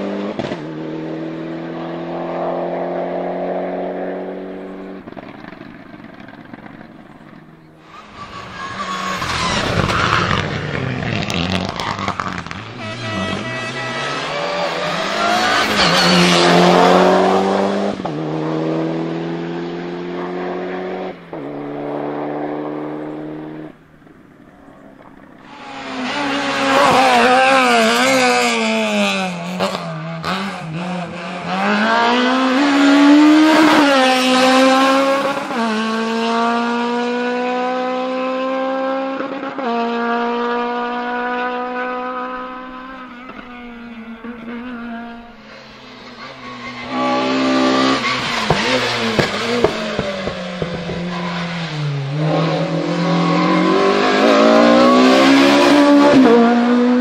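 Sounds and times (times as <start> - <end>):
race car accelerating through gears: 0.0 - 23.9, 24.6 - 57.0.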